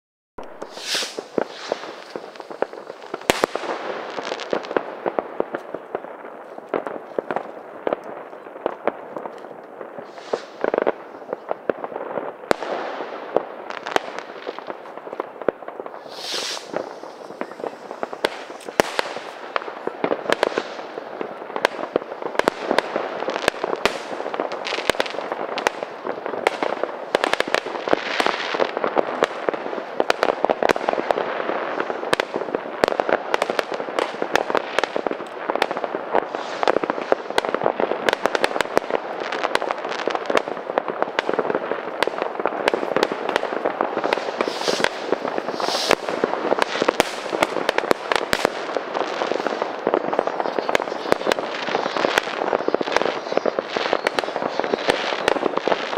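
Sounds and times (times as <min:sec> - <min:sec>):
firework whistle: 0:00.4 - 0:03.6, 0:15.9 - 0:19.4, 0:44.0 - 0:47.4, 0:49.2 - 0:55.9
fireworks popping and banging: 0:00.4 - 0:55.9.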